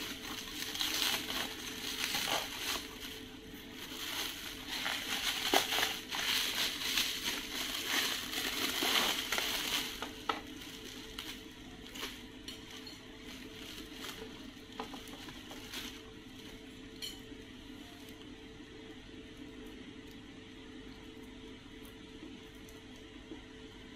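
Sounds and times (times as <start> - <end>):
plastic packaging crinkling: 0.0 - 16.8
faint steady hum: 0.0 - 23.9.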